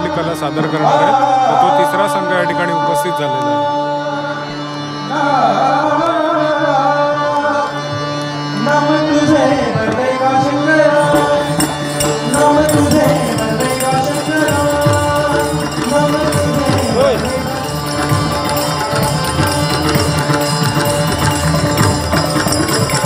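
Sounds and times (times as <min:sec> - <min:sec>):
person singing gliding melody: 0:00.0 - 0:23.0
hand drums: 0:10.9 - 0:23.0.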